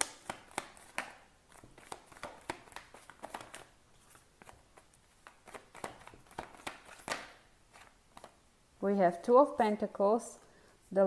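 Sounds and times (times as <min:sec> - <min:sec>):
cards shuffling: 0:00.0 - 0:08.4.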